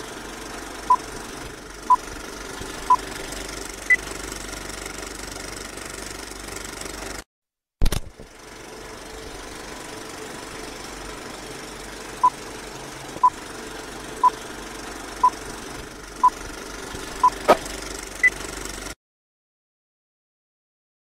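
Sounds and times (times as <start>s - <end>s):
film projector running with hiss: 0.0s - 7.2s, 8.2s - 19.0s
sharp click: 7.8s - 8.2s.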